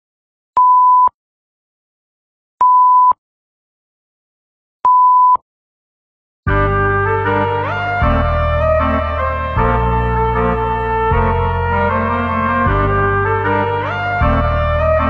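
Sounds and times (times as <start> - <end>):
electronic countdown beeps: 4.9 - 5.4.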